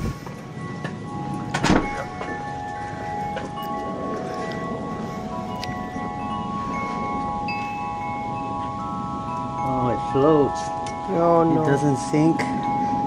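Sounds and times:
wind rushing: 0.0 - 1.4
wind chimes ringing: 0.0 - 13.0.

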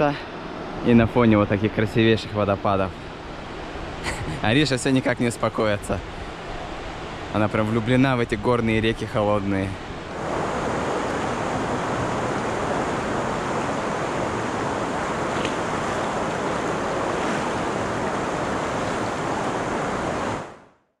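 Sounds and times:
river rushing over rocks: 10.0 - 20.6.

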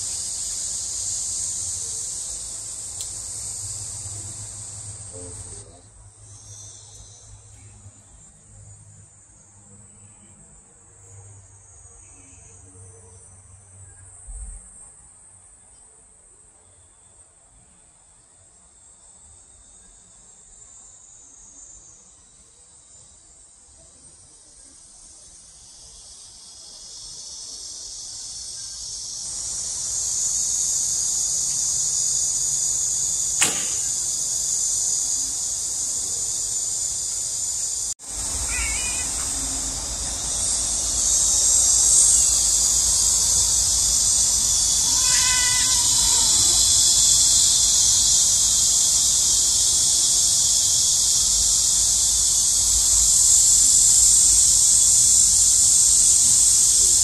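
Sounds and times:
insect chorus: 0.0 - 57.0
bow string snap: 33.4 - 34.3.

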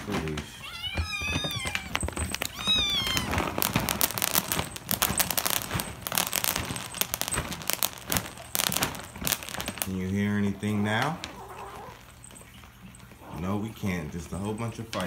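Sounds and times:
kittens crunching dry kibble: 0.0 - 15.0
kittens meowing: 0.2 - 4.4, 10.4 - 12.5.

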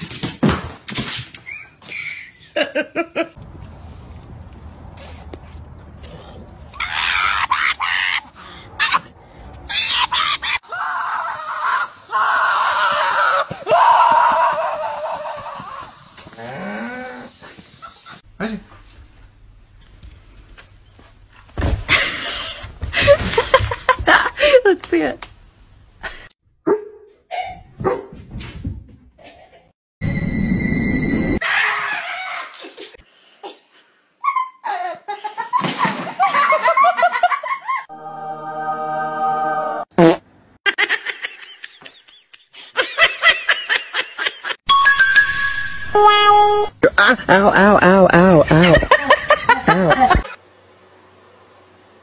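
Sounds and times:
person laughing: 46.8 - 50.4.

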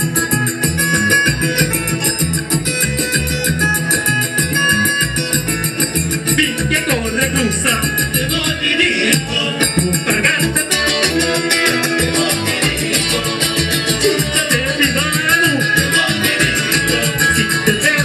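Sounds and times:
electric guitars: 0.0 - 18.0
shaker rhythm: 0.0 - 18.0
person singing: 6.5 - 18.0.

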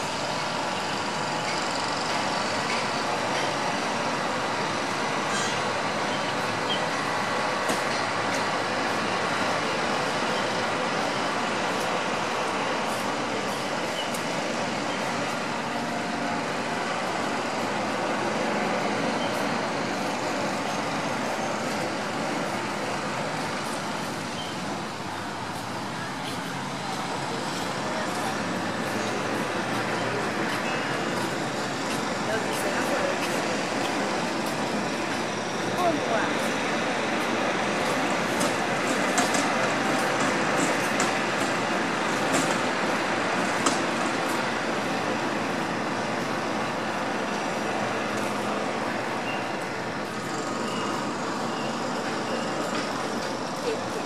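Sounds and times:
road traffic hum: 0.0 - 54.0.

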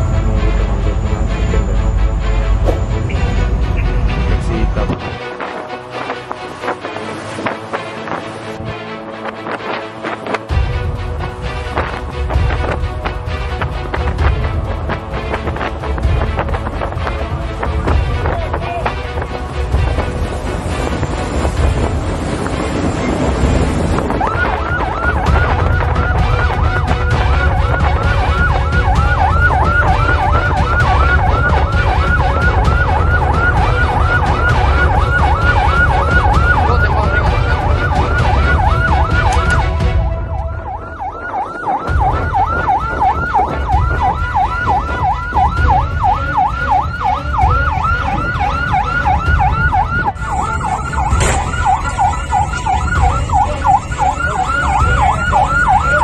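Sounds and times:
siren yelping: 0.0 - 5.0, 23.9 - 56.0
low rumble of wind and water: 0.0 - 28.3.

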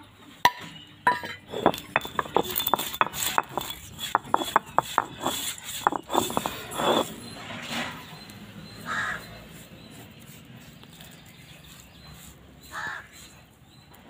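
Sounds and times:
stone crushing seeds: 1.1 - 7.4
stone scraping rub: 1.1 - 13.5.

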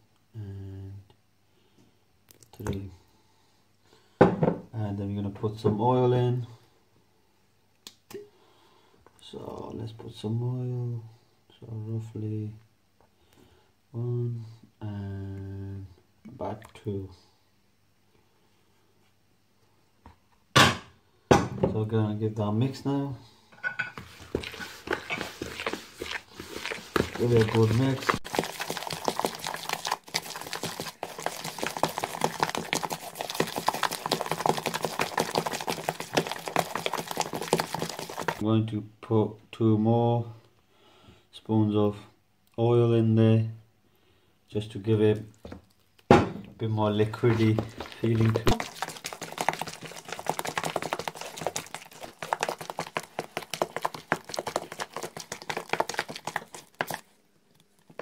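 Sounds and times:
spoon scraping plastic bowl: 23.9 - 38.4, 47.1 - 58.0
hand squelching wet marinade: 24.0 - 38.4, 46.8 - 58.0.

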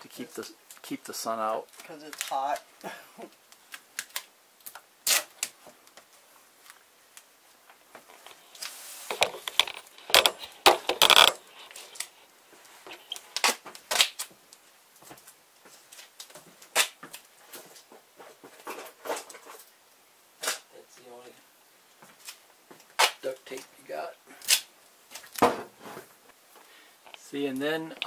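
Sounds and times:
tape tearing and crackling: 1.7 - 2.7, 3.3 - 5.6, 8.1 - 12.2, 12.9 - 14.3, 15.9 - 17.3, 20.4 - 20.6, 22.2 - 23.6, 24.4 - 25.5
tape clicks and knocks: 9.1 - 11.4.

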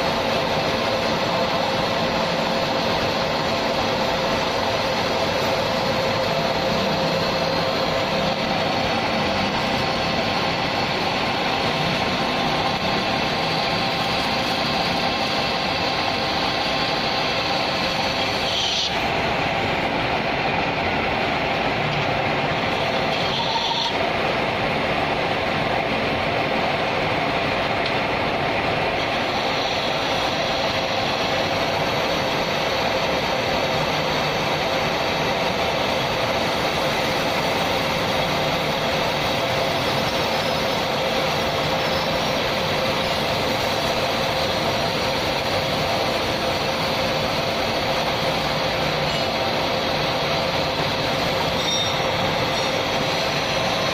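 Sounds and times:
metal lathe running: 0.0 - 53.9
high hiss of cutting: 22.7 - 24.1.

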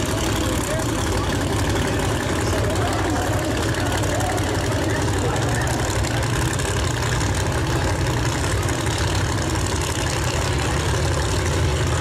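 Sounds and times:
race car engines idling: 0.0 - 12.0.

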